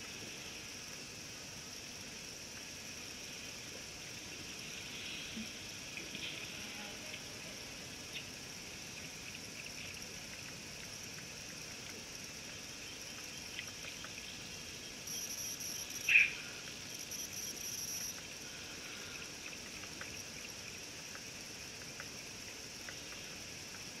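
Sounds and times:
insects chirring: 0:00.0 - 0:24.0
faint ticks: 0:08.0 - 0:24.0.

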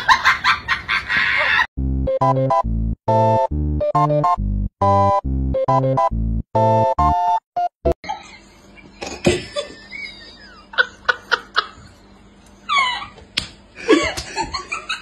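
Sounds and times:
person laughing and giggling: 0:00.0 - 0:01.7, 0:08.0 - 0:15.0
synth music tune: 0:01.8 - 0:08.0.

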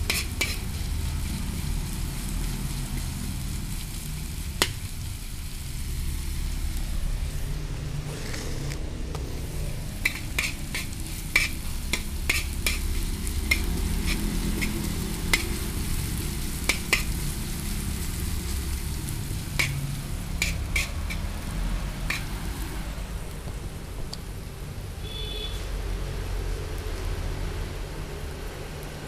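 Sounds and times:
spoon scraping metal wok: 0:00.0 - 0:00.9, 0:08.1 - 0:22.7
onions sizzling: 0:00.0 - 0:29.0.

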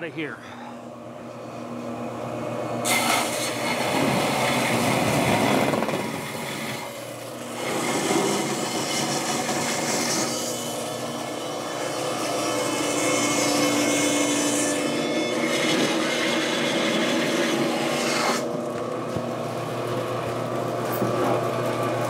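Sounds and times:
band saw motor running: 0:01.0 - 0:22.0
saw blade cutting wood: 0:02.8 - 0:07.0, 0:07.6 - 0:18.5.

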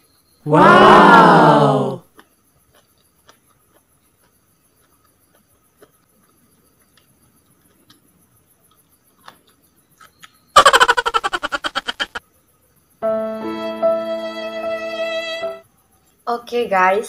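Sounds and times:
quiet chewing: 0:02.1 - 0:10.4
loud piano-like music: 0:13.0 - 0:15.6.

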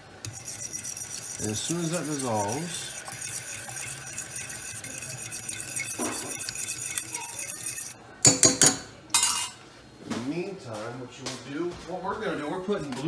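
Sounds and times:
liquid bubbling: 0:00.3 - 0:08.0
fork clinking against saucepan: 0:00.3 - 0:09.6.

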